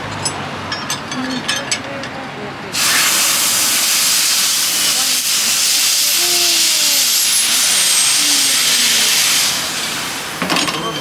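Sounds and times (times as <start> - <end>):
steam hissing: 2.7 - 11.0.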